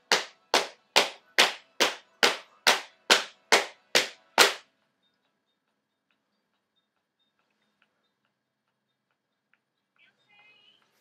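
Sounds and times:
hands slapping thighs: 0.0 - 4.6.

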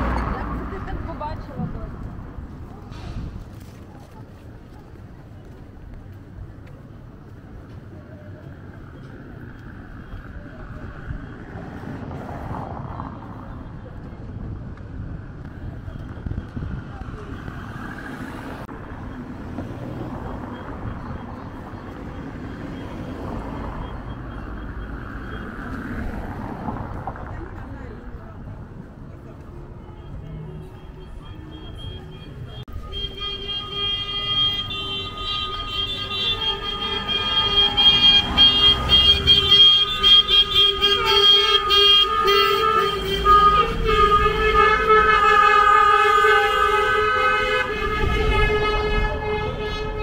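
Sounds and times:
vehicle engine rumble: 0.0 - 50.0
car horns honking: 29.8 - 50.0.

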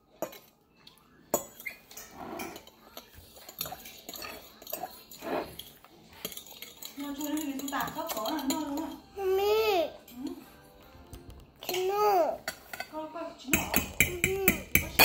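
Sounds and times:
fork clinking against a bowl: 0.1 - 9.1, 11.6 - 12.9, 13.5 - 15.0
child's voice: 9.2 - 10.0, 11.6 - 12.4, 14.1 - 14.7.

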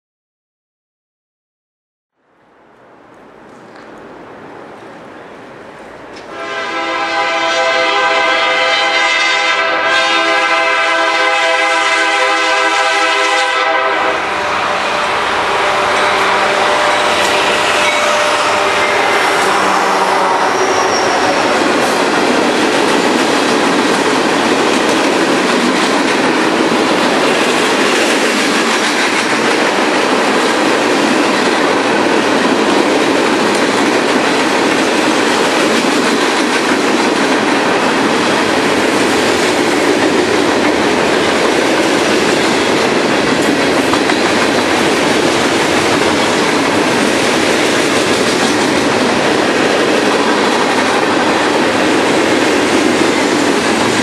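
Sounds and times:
train wheels clattering on rails: 15.6 - 54.0.

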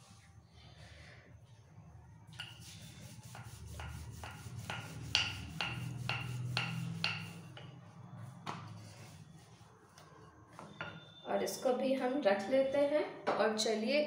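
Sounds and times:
rolling pin rolling dough: 2.4 - 11.2.

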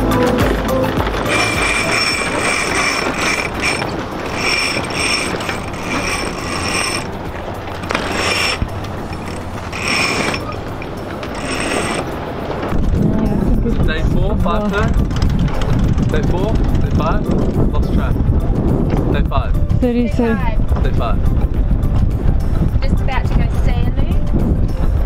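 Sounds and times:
winch ratcheting: 0.8 - 12.9
halyard running through blocks: 1.0 - 12.8.

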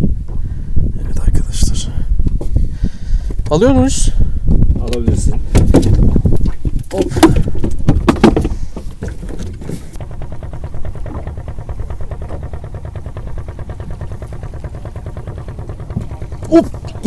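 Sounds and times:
boat engine running: 0.0 - 17.0
rough wind buffeting noise: 0.0 - 17.0.

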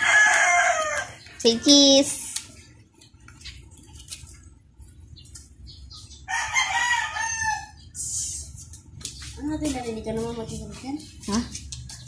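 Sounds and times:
rooster crowing: 0.0 - 1.2, 6.3 - 7.8.

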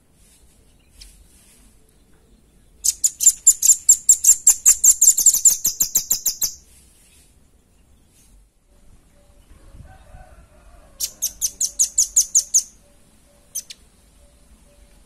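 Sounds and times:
bird calling sharp high chips: 2.8 - 6.7.

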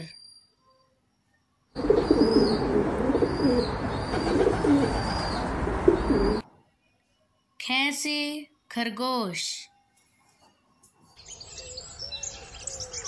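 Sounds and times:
pigeons cooing: 1.8 - 6.4.

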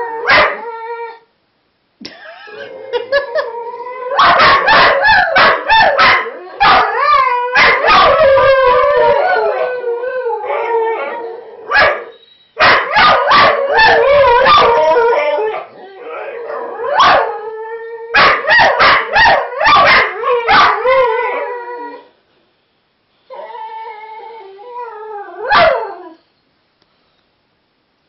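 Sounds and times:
dogs yipping and barking: 0.2 - 0.9, 4.1 - 9.2, 10.6 - 17.4, 18.2 - 22.0
dogs howling: 2.6 - 11.8, 12.7 - 22.1.

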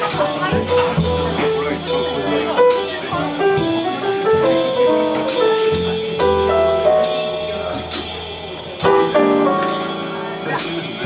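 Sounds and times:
piano melody: 0.0 - 11.0
plucked double bass: 0.0 - 11.0.

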